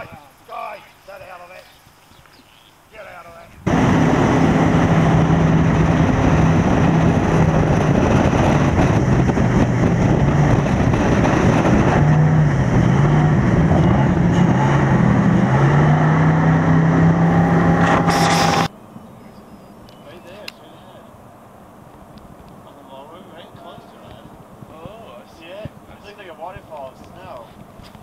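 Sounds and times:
rush of wind and water: 3.4 - 17.8
motorboat engine running: 3.7 - 18.7.

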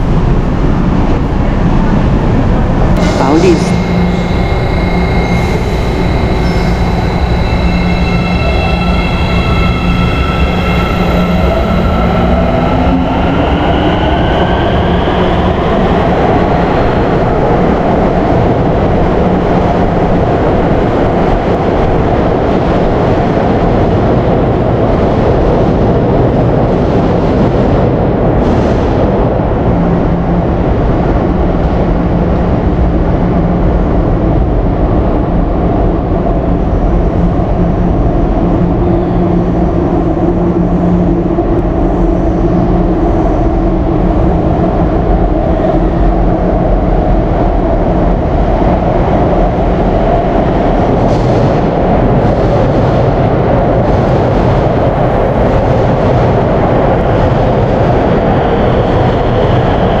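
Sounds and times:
high whine: 0.0 - 17.5
train running rumble: 0.0 - 60.0.

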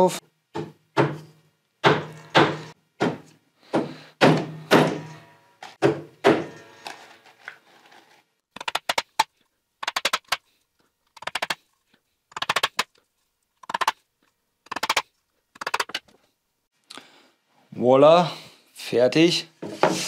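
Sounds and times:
hammer tapping nails: 0.6 - 5.1.

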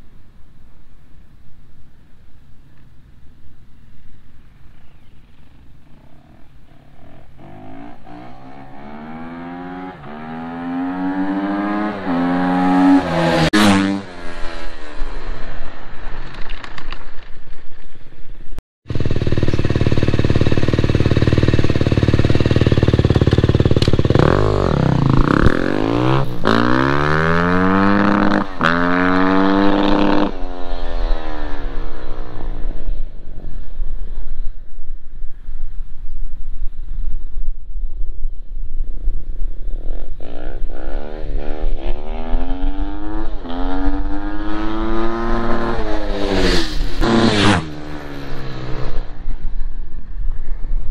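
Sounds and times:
dirt bike accelerating: 4.8 - 17.2, 18.9 - 34.4, 39.6 - 49.7.

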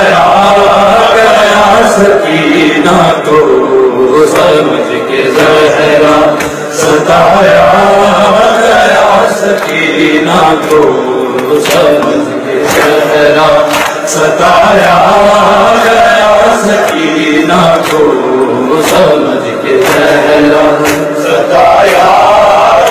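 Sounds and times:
man chanting into a microphone: 0.0 - 22.9
chest-beating slaps: 6.3 - 6.9, 11.4 - 14.3, 18.8 - 22.0.

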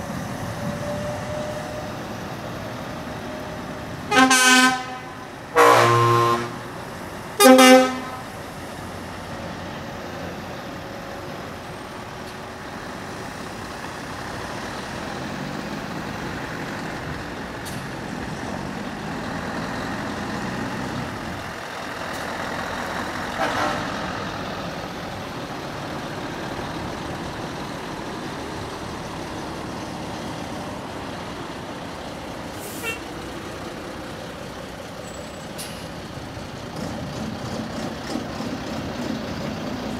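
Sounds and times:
lorry engines driving past: 0.0 - 39.9
truck horn blast: 4.1 - 6.7, 7.4 - 8.4, 23.4 - 24.1, 32.7 - 33.1.

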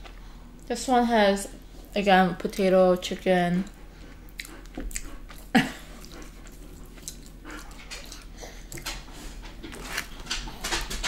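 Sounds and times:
faint eating clicks: 2.4 - 11.0.

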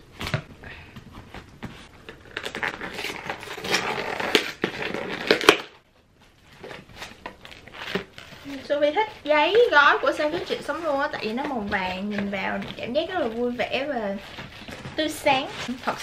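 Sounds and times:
scissors cutting packing tape: 2.2 - 5.7
cardboard and tissue paper crinkling: 6.3 - 16.0.

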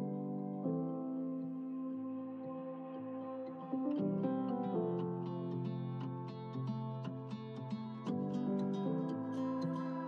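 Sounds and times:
plucked-string melody: 3.7 - 10.0.

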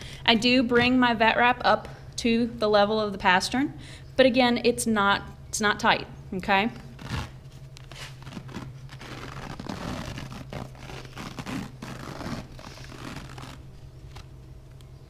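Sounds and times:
adhesive wrap peeling off roll: 6.9 - 14.3.

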